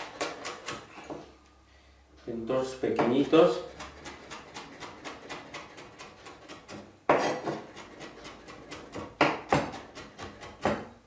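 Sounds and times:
knife chopping on cutting board: 3.0s - 11.0s.

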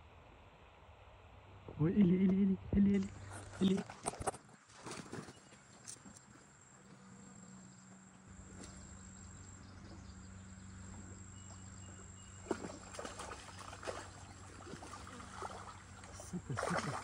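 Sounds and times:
distant motor humming: 6.4s - 17.0s.

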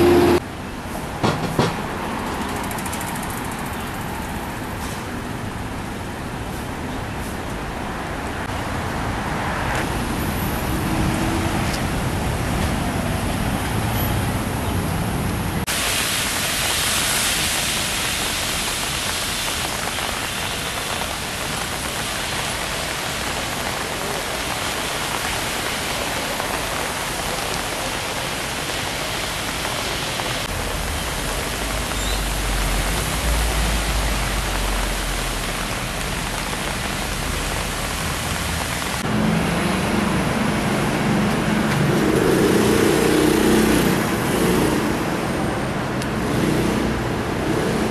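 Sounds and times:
traffic engines running: 0.0s - 47.9s
tyres on wet road: 0.0s - 47.9s
rain hissing: 15.6s - 45.4s.

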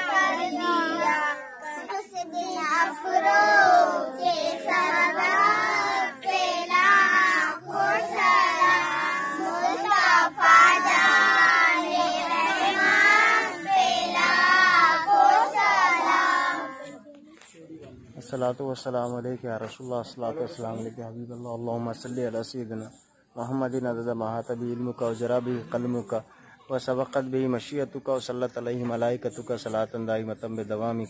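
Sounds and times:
children singing together: 0.0s - 16.9s.

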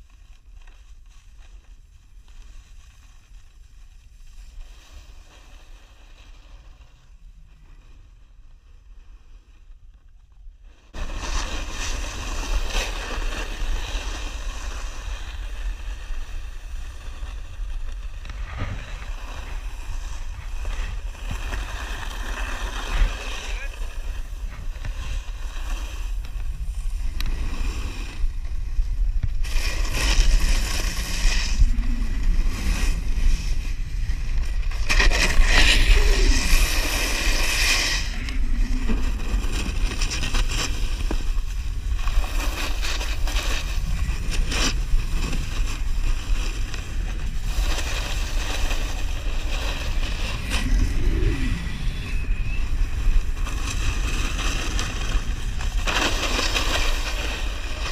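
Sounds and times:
snowboard scraping across snow: 0.0s - 57.9s
wind buffeting microphone: 41.2s - 57.9s.

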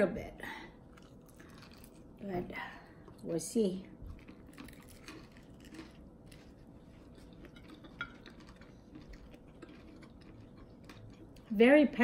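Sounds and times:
person chewing chicken wing: 0.9s - 2.1s, 4.0s - 11.5s.

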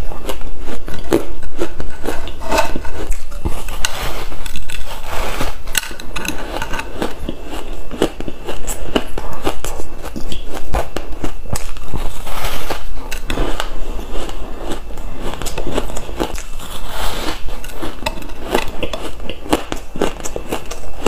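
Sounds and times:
ice being chewed: 0.0s - 21.0s.

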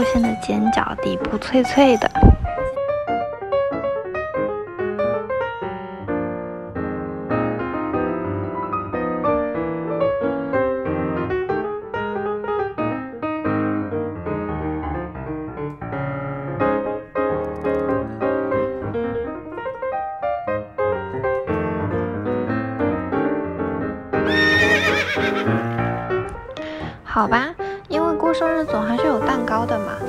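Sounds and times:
piano music: 0.0s - 30.0s
horse whinny: 24.2s - 25.7s.

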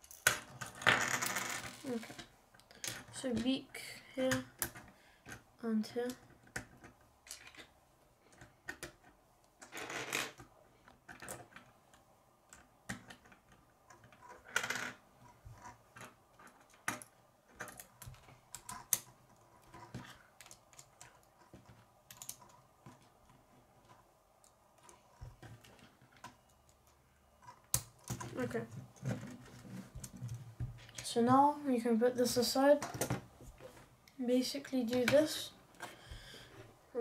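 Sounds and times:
plastic pieces clicking together: 6.0s - 7.7s, 15.6s - 28.4s.

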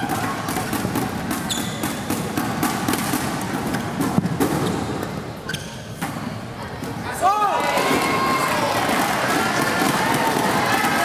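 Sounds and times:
racket hitting shuttlecock: 0.0s - 5.2s
crowd noise in hall: 0.0s - 11.0s.

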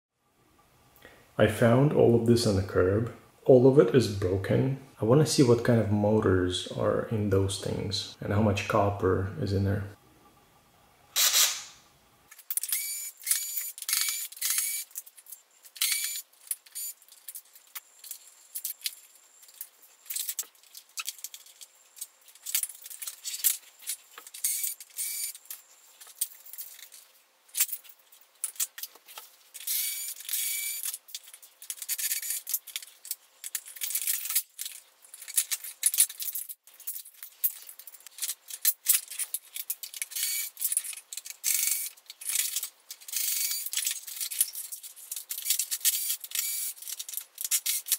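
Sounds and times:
plastic parts clicking and rattling: 12.3s - 47.9s.

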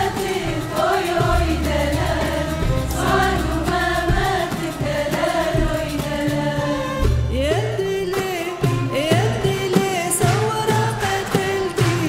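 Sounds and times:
sustained bass: 0.0s - 8.0s
women's choir singing: 0.0s - 8.1s, 9.2s - 12.0s
frame drum: 0.0s - 12.0s
violins: 0.0s - 12.0s.

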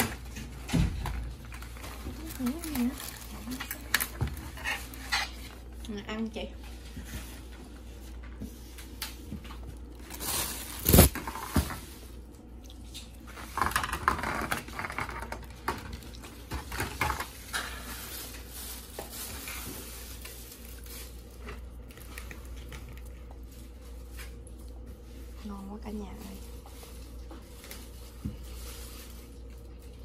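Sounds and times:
plastic containers crinkling: 0.0s - 5.7s, 8.9s - 12.2s, 12.8s - 24.6s
sharp plastic crack: 10.1s - 11.8s.

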